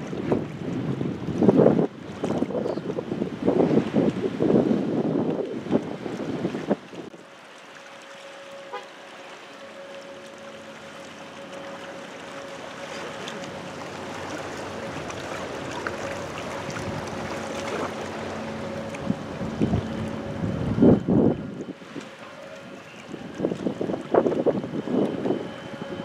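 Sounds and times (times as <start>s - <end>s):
light wind: 0.0s - 26.0s
water washing: 0.0s - 26.0s.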